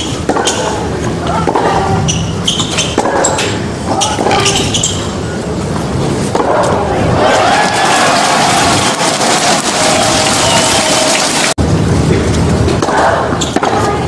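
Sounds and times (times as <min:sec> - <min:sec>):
racket striking tennis ball: 0:00.0 - 0:00.8, 0:02.6 - 0:03.6, 0:12.8 - 0:14.0
crowd applauding: 0:07.2 - 0:11.6.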